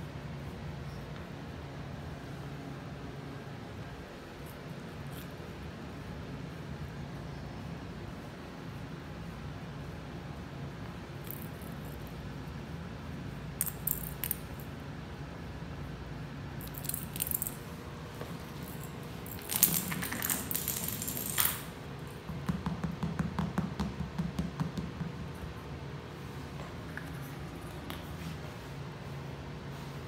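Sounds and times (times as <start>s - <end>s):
toy ball rolling on tile floor: 18.6s - 21.7s.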